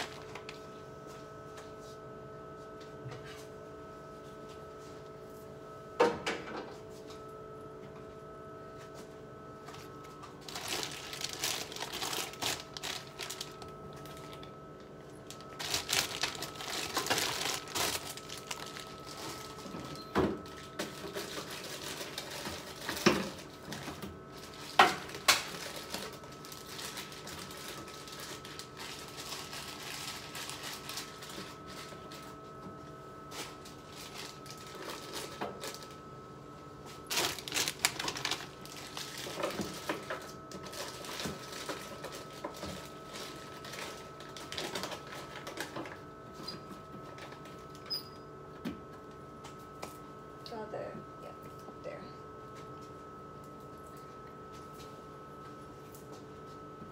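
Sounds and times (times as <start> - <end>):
refrigerator hum: 0.0 - 56.9
containers clattering in fridge: 15.6 - 26.2.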